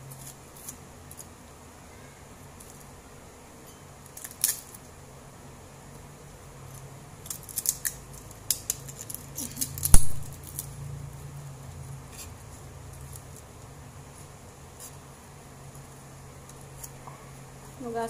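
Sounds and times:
low steady hum: 0:00.0 - 0:18.0
garlic head crackling apart: 0:04.0 - 0:04.8, 0:07.2 - 0:10.7
sharp knock: 0:09.9 - 0:10.3.

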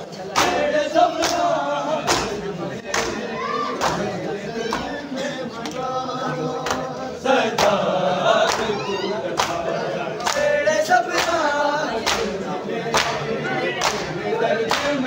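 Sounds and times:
men chanting in chorus: 0:00.0 - 0:15.0
chest beating slaps: 0:02.0 - 0:03.2.

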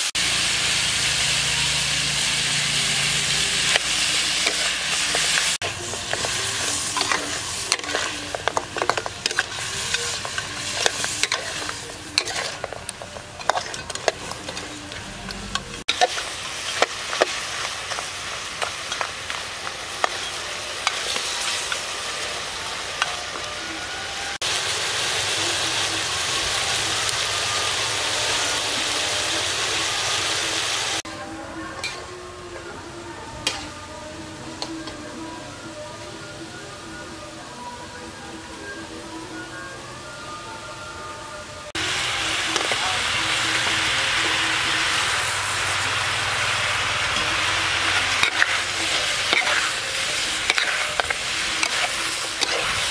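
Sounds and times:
ribs sizzling in a wok: 0:00.0 - 0:38.0, 0:41.7 - 0:52.9
spatula scraping a pan: 0:03.6 - 0:19.1, 0:48.2 - 0:52.9.

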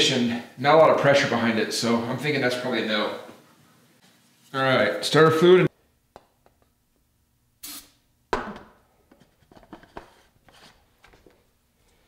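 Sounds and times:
aerosol can hissing squirts: 0:07.6 - 0:08.0.

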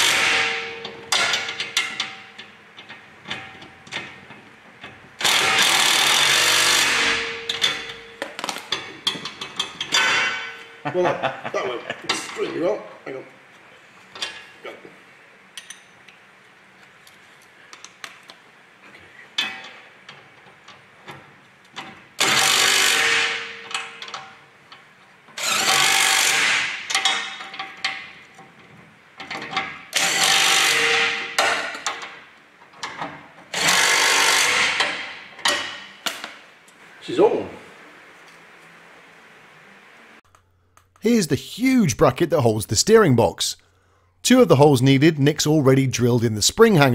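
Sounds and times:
impact wrench bursts: 0:00.0 - 0:02.0, 0:05.2 - 0:08.0, 0:22.2 - 0:24.0, 0:25.4 - 0:27.4, 0:29.9 - 0:31.8, 0:33.5 - 0:35.3.

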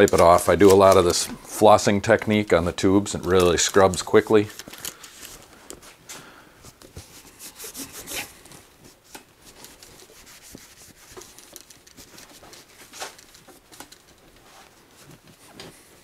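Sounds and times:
cloth rag rubbing bike frame: 0:07.0 - 0:13.3.

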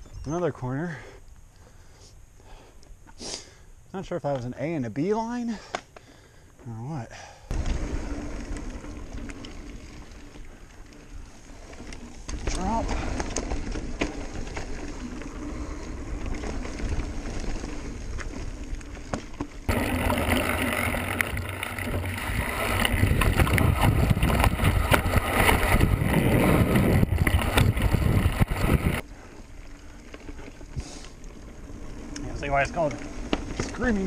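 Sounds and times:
bike rattling: 0:07.5 - 0:34.0
tyre rumble on dirt and rock: 0:11.3 - 0:29.0
wind buffeting microphone: 0:19.7 - 0:29.0.

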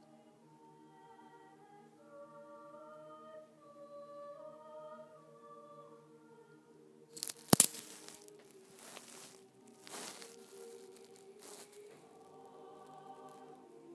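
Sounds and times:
choir singing: 0:00.0 - 0:13.9
crackling rustle at microphone: 0:07.2 - 0:12.1.

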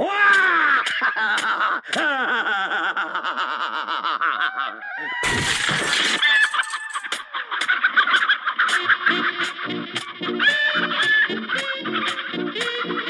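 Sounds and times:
wooden fence boards smashing: 0:05.2 - 0:06.7
chickens squawking: 0:06.2 - 0:09.6, 0:10.2 - 0:13.0.

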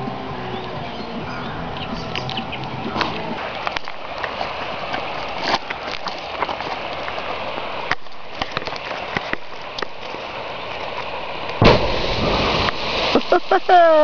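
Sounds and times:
column of water rushing: 0:03.4 - 0:14.0
underwater explosion blast: 0:11.6 - 0:13.6.

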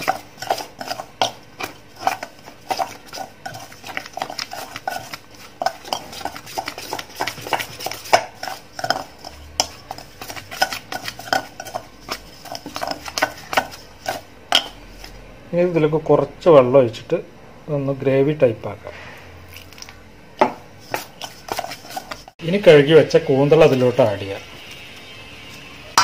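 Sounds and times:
spoon scraping steel bowl: 0:00.0 - 0:15.2, 0:20.8 - 0:22.4.

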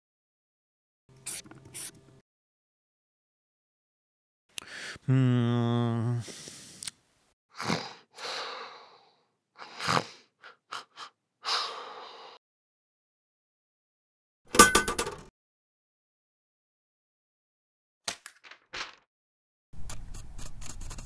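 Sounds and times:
snoring and wheezy breathing: 0:07.5 - 0:12.4.

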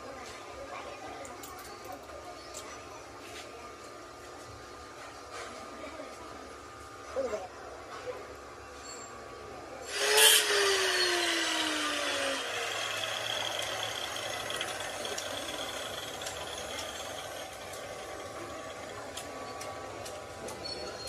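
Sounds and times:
metal lathe running: 0:09.9 - 0:21.0.

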